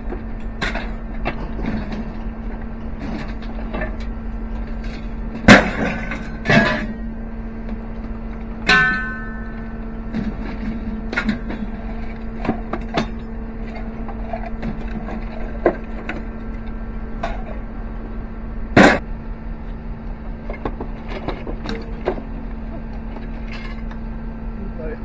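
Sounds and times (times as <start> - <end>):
scrap metal clanking: 0.0 - 7.1, 8.6 - 16.3
steady machine hum: 0.0 - 25.0
loud metal crash: 5.3 - 7.0, 18.7 - 19.1.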